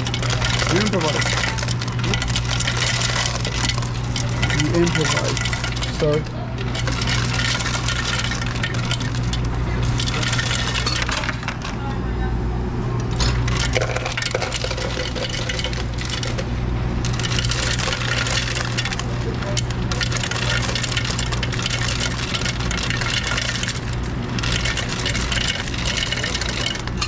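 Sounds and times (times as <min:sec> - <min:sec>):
ice cubes clattering into cups: 0:00.0 - 0:11.9, 0:13.1 - 0:27.0
steady low hum: 0:00.0 - 0:27.0.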